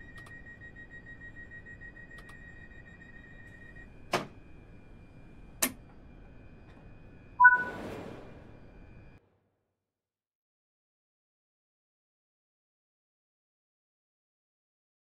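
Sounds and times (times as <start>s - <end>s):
electric train hum and whine: 0.0s - 9.2s.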